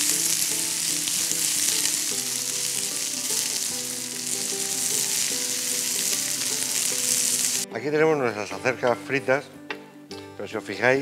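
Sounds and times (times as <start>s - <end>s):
vegetables sizzling in hot oil: 0.0s - 7.7s.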